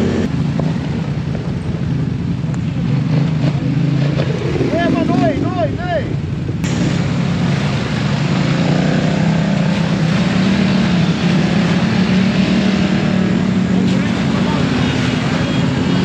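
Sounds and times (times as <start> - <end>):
atv engine running: 0.0 - 16.0
rushing noise: 4.1 - 16.0.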